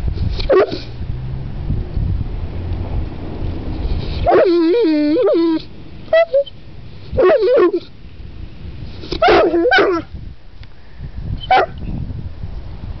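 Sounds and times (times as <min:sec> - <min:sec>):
dog howling vocal sounds: 0:04.2 - 0:06.5, 0:07.2 - 0:07.9, 0:09.2 - 0:10.0.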